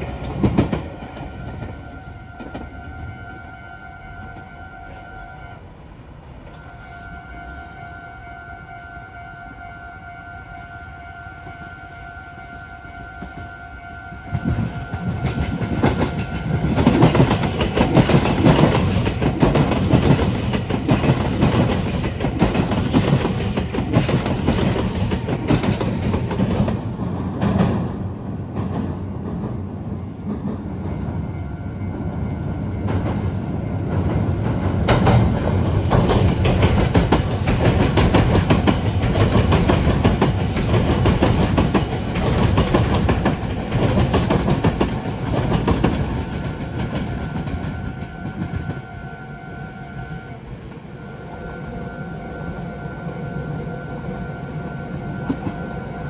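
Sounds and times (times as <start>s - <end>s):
train wheels clattering over rails: 0.0s - 2.8s, 14.3s - 31.2s, 32.8s - 48.9s.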